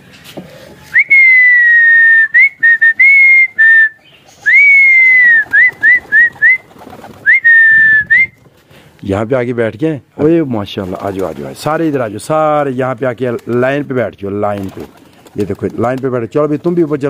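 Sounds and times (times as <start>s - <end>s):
person whistling loud calls: 0.9s - 8.4s.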